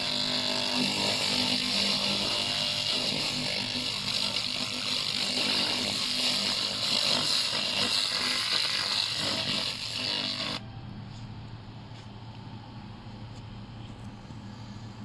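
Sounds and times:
laser welder crackling hiss: 0.0 - 10.6
low steady hum: 9.2 - 15.0.

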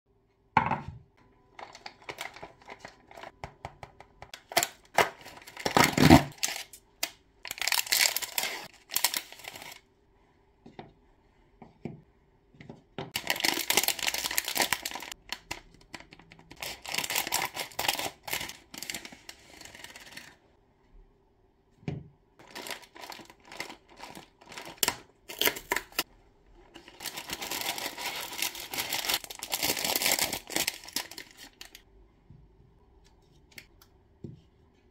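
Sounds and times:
plastic wrappers crinkling: 1.6 - 3.3, 4.4 - 9.8, 13.2 - 20.4, 22.4 - 26.0, 26.6 - 31.8.

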